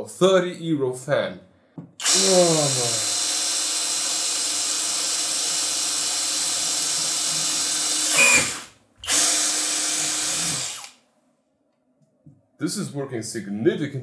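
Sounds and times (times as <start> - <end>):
drill boring into plastic: 2.0 - 11.0.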